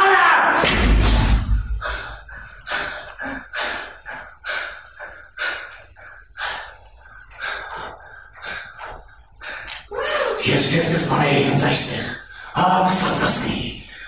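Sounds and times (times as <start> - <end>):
loud thud: 0.6 - 1.9
man panting hard: 1.6 - 10.5.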